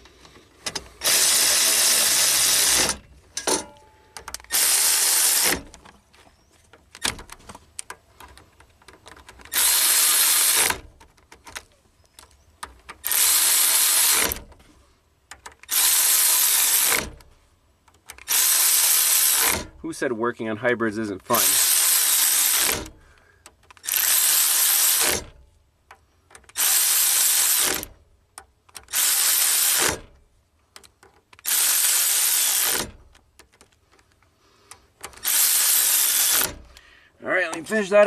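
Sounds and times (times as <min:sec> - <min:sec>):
cordless power tool spinning nuts: 0:01.0 - 0:03.0, 0:04.4 - 0:05.7, 0:09.5 - 0:10.8, 0:13.0 - 0:14.4, 0:15.6 - 0:17.2, 0:18.2 - 0:19.8, 0:21.4 - 0:23.0, 0:23.7 - 0:25.3, 0:26.5 - 0:27.9, 0:28.8 - 0:30.1, 0:31.4 - 0:33.0, 0:35.0 - 0:36.8.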